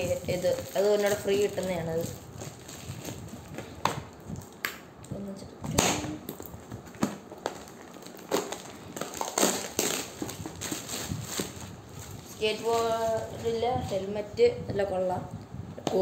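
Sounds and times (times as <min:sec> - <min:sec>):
plastic wrapping crinkling: 0:00.0 - 0:04.6, 0:05.8 - 0:14.1.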